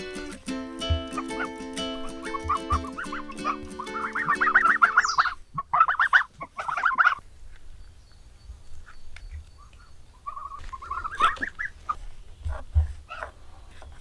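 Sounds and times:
geese honking: 0:00.7 - 0:07.2, 0:10.2 - 0:13.3.

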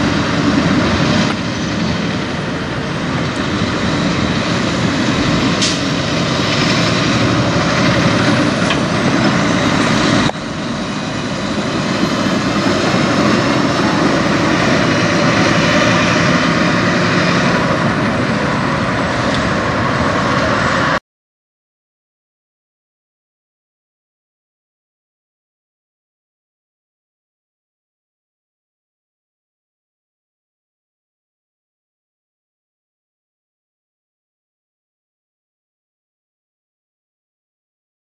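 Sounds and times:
truck diesel engine passing: 0:00.0 - 0:21.0
tyre and road noise: 0:00.0 - 0:21.0.

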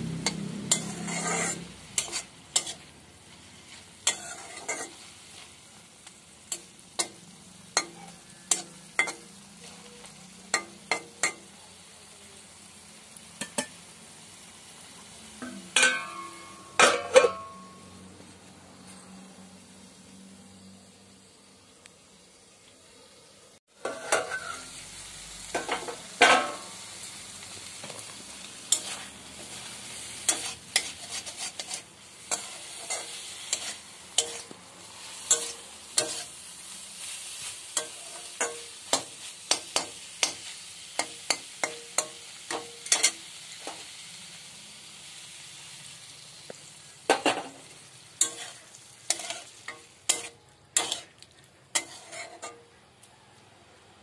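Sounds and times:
frying sizzle: 0:00.0 - 0:54.0
spatula scraping metal pan: 0:00.2 - 0:02.9, 0:03.5 - 0:05.5, 0:23.8 - 0:24.7, 0:28.6 - 0:36.4, 0:48.2 - 0:52.8.

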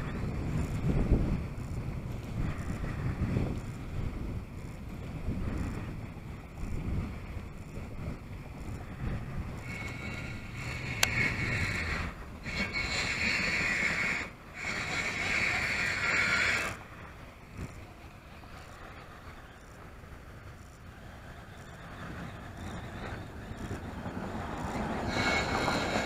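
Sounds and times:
wind buffeting microphone: 0:00.0 - 0:26.0
fishing reel whirring: 0:08.6 - 0:16.8.

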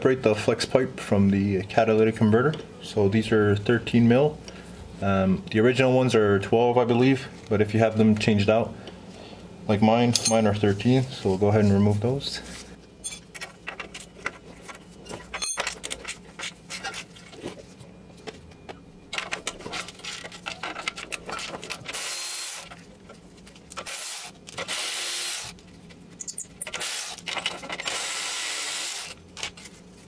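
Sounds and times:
cordless ratchet motor whirring: 0:27.8 - 0:29.2.

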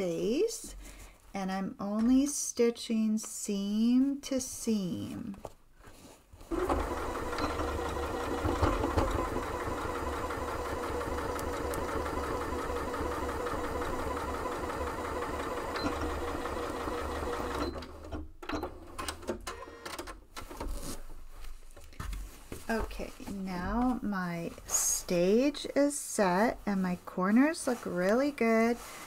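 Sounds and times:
fabric rustling: 0:05.0 - 0:06.6, 0:20.6 - 0:25.8, 0:26.4 - 0:29.0
sewing machine stitching: 0:06.5 - 0:20.8.

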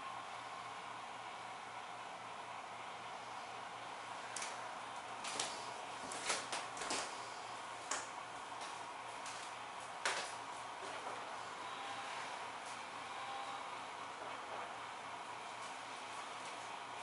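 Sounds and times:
sharp clicks and light knocks: 0:07.9 - 0:08.1.

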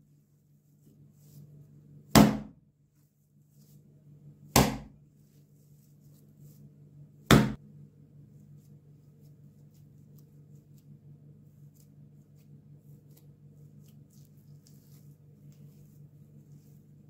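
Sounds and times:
hands squishing mince: 0:09.1 - 0:17.0.

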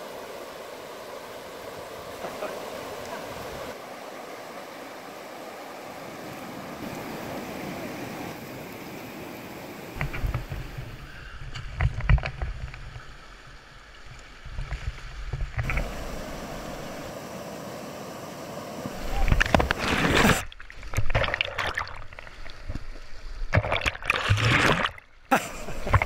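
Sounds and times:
river rapids rushing: 0:00.0 - 0:10.0, 0:15.7 - 0:20.5
wind rumble on microphone: 0:10.0 - 0:13.2.

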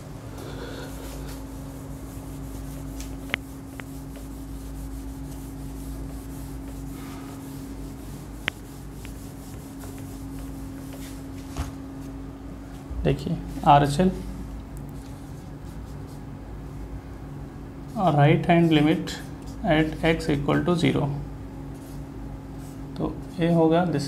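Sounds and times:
eraser rubbing on whiteboard: 0:00.8 - 0:11.7, 0:17.9 - 0:20.2.

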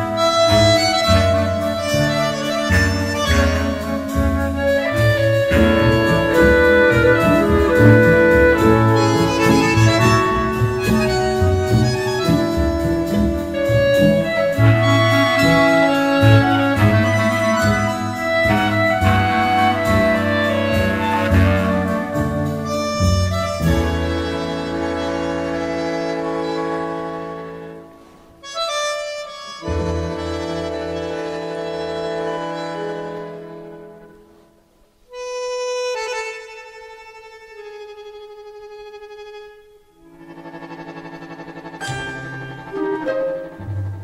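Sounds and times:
orchestral film score music: 0:00.0 - 0:26.0, 0:40.1 - 0:44.0
accordion-like reed instrument: 0:00.0 - 0:34.4, 0:35.1 - 0:44.0
held string chords: 0:03.6 - 0:23.2.

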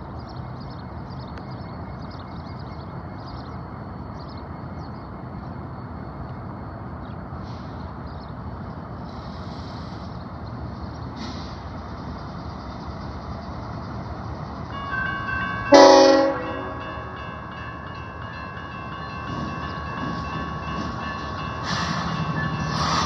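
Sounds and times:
train rumble: 0:00.0 - 0:23.0
crossing warning bell ringing: 0:12.8 - 0:23.0
train horn blast: 0:15.7 - 0:17.2.

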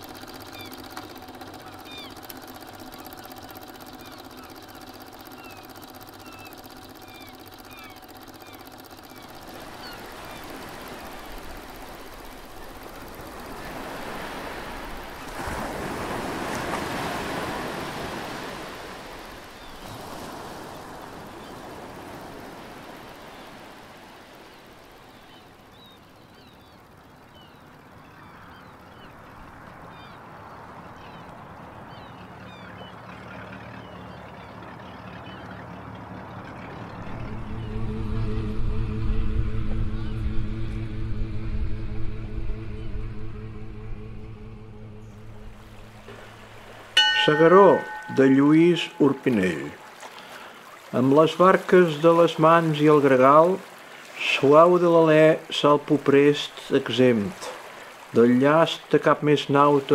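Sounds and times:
small birds chirping: 0:00.0 - 0:13.9, 0:23.2 - 0:38.0
sea waves washing in: 0:00.0 - 0:27.0, 0:34.8 - 0:59.9.

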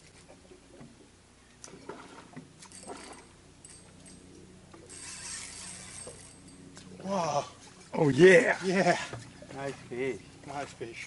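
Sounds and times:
fishing reel clicks and whines: 0:04.9 - 0:06.5.

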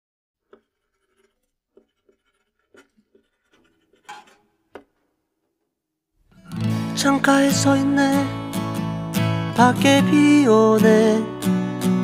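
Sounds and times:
paper scrape: 0:00.4 - 0:04.6.

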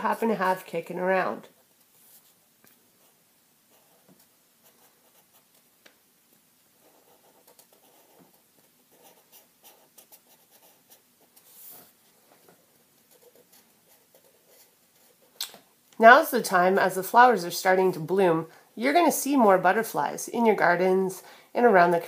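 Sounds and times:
marker scratching on paper: 0:06.8 - 0:12.0.

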